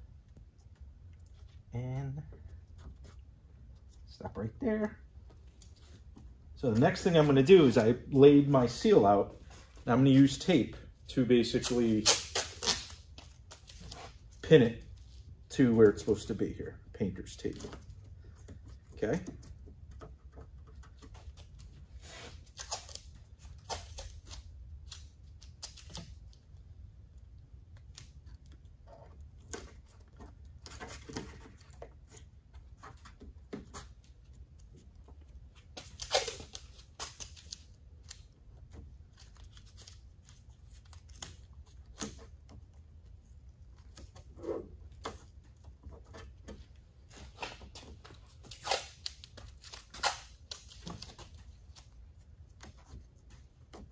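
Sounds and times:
tape tearing: 0:11.4 - 0:14.4, 0:20.8 - 0:26.4, 0:35.6 - 0:42.6, 0:45.9 - 0:53.9.

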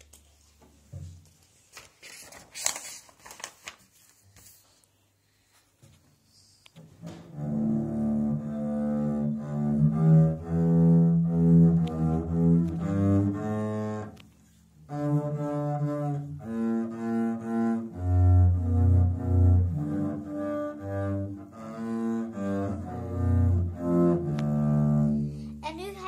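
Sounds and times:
bowed double bass melody: 0:07.0 - 0:14.2, 0:14.8 - 0:25.6.

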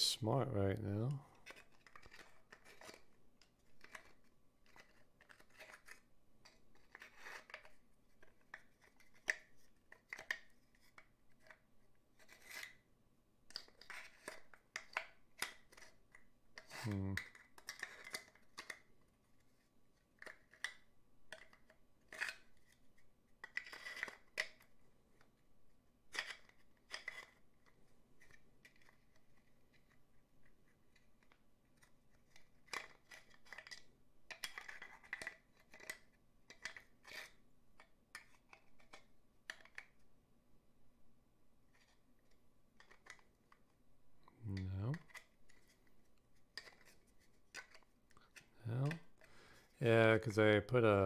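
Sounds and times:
wooden puzzle box scraping and clicking: 0:01.4 - 0:11.6, 0:12.2 - 0:12.8, 0:13.5 - 0:18.9, 0:20.2 - 0:24.7, 0:26.1 - 0:30.1, 0:30.7 - 0:40.0, 0:42.8 - 0:43.3.

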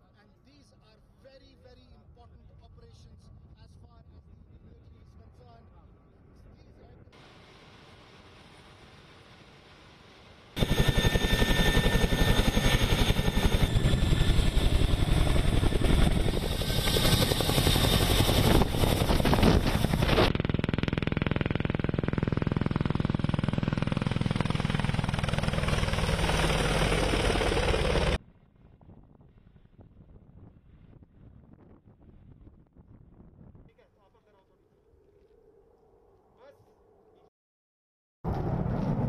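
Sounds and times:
helicopter rotor chop and engine: 0:07.2 - 0:28.7.

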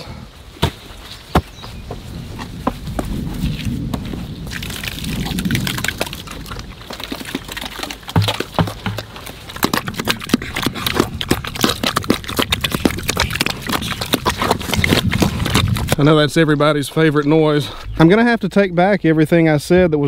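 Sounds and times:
pigs slurping and chomping feed: 0:04.5 - 0:17.1.

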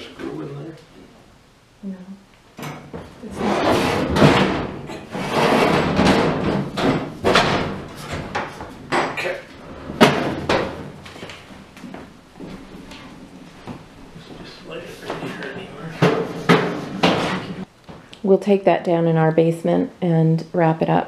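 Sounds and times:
metal scraping and rattling: 0:03.2 - 0:11.0.

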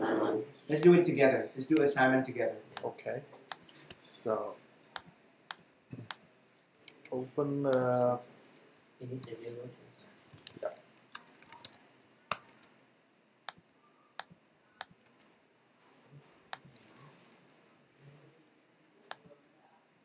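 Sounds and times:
keyboard typing: 0:06.0 - 0:08.6, 0:09.2 - 0:12.7, 0:13.5 - 0:15.3, 0:16.5 - 0:17.5.

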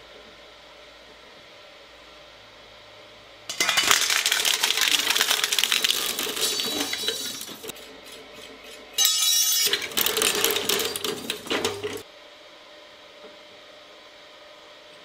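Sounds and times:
loud grinding burst: 0:03.5 - 0:07.8
shredder chewing metal scraps: 0:03.5 - 0:12.0.

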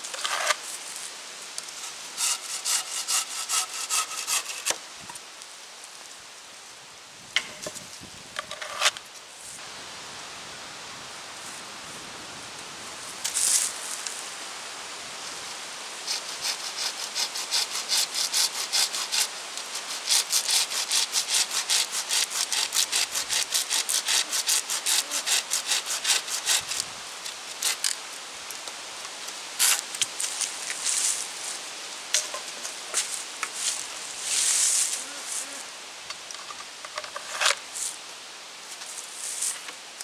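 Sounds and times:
hand saw cutting wood: 0:00.1 - 0:00.6, 0:01.8 - 0:04.8, 0:16.1 - 0:26.9, 0:27.6 - 0:28.0.

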